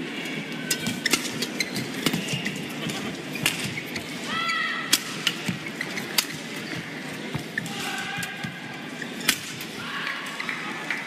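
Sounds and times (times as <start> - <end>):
shoes squeaking on court: 0.6 - 9.4.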